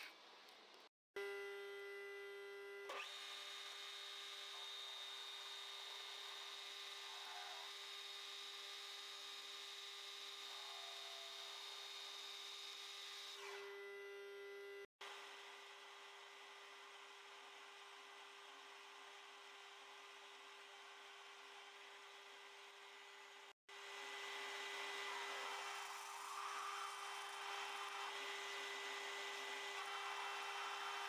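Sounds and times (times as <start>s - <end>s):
metal lathe whining: 24.1s - 31.0s.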